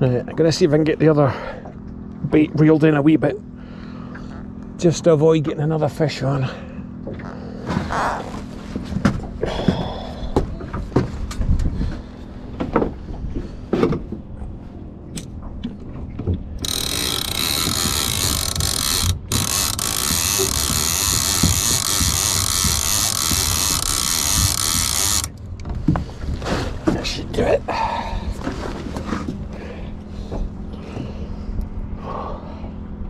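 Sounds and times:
fishing reel cranking and clicking: 16.6 - 25.4.

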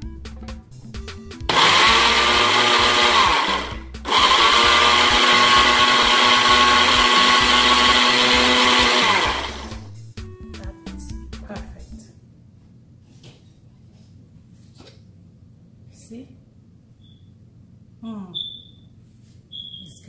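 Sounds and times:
electric blender running: 1.5 - 9.9.

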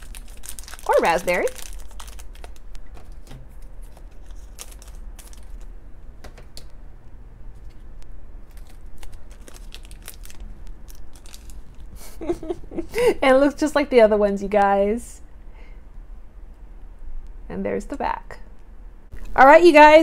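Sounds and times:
foil wrapper crinkling: 0.0 - 5.8, 8.4 - 12.2.

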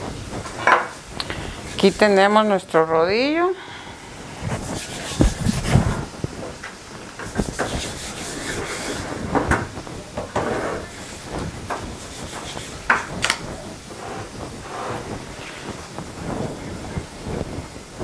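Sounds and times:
hands patting dough: 4.4 - 6.5, 7.1 - 13.6.

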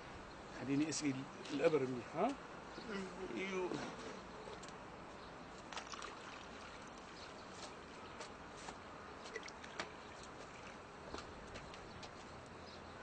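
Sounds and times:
water trickling from a jug: 5.5 - 8.2, 9.2 - 11.1.

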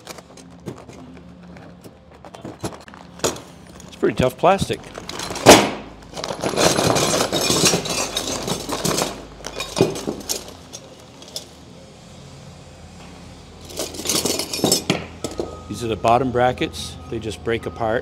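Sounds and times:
metal parts clattering on wood: 2.3 - 11.6, 13.6 - 15.6.

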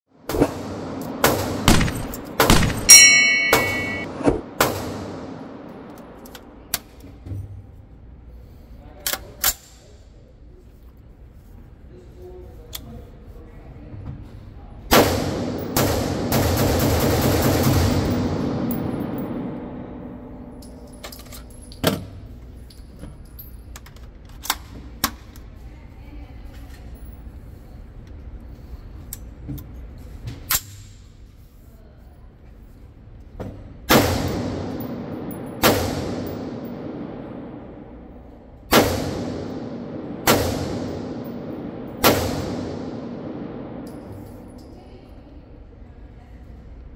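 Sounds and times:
rifle gunshots echoing: 0.8 - 5.7, 33.9 - 38.1, 38.7 - 44.2
sharp metallic clacks: 1.7 - 4.1
bright metallic ring: 2.8 - 4.1.

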